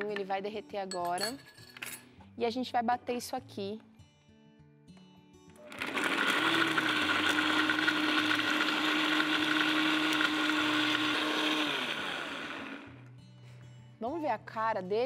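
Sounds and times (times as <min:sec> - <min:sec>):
blender motor whirring: 0:05.6 - 0:12.9.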